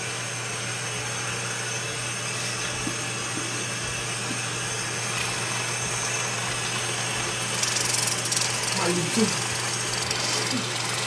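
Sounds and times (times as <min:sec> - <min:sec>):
machine whirring hiss: 0:07.4 - 0:11.0.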